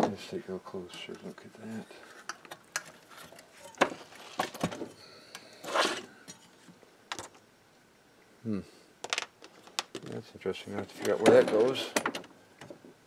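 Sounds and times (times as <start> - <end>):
scraping rustle: 5.6 - 6.8.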